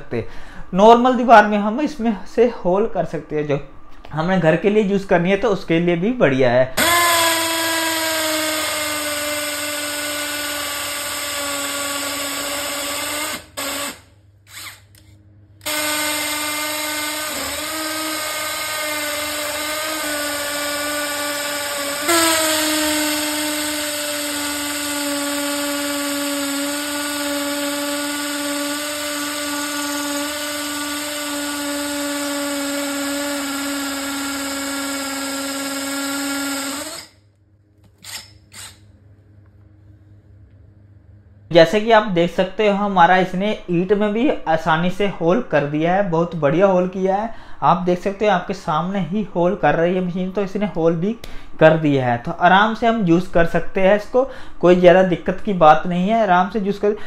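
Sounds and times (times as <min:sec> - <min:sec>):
cordless drill boring into brick: 0:06.8 - 0:15.0, 0:15.6 - 0:37.2, 0:38.0 - 0:38.8.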